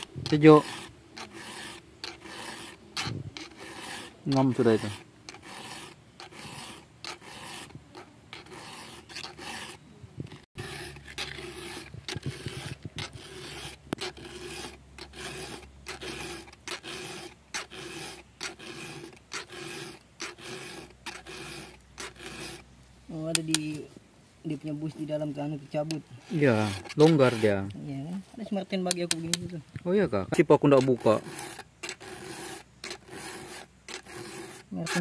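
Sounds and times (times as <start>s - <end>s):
file rasping on chainsaw chain: 0.0s - 22.6s, 25.7s - 27.7s, 30.4s - 35.0s.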